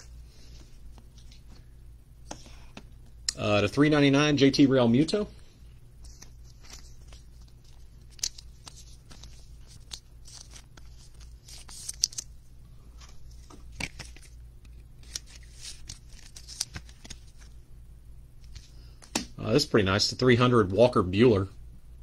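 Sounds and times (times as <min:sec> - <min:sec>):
low steady hum: 0:00.0 - 0:22.0
plastic sleeve clicks and rustles: 0:06.1 - 0:12.3, 0:13.0 - 0:17.5.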